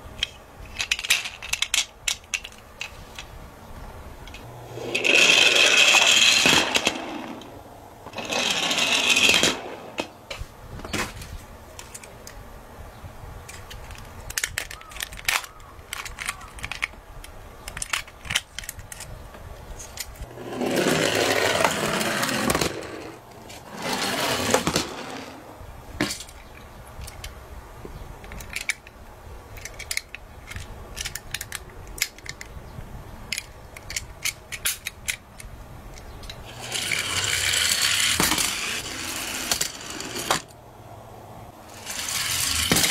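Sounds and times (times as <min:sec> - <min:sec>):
toy cars rolling on wood: 0:00.2 - 0:03.3, 0:04.2 - 0:10.4, 0:13.5 - 0:19.1, 0:19.8 - 0:27.4, 0:28.3 - 0:32.6, 0:33.3 - 0:40.6, 0:41.6 - 0:42.9
toys clicking and tapping: 0:13.5 - 0:19.1, 0:28.3 - 0:32.5, 0:33.3 - 0:40.5.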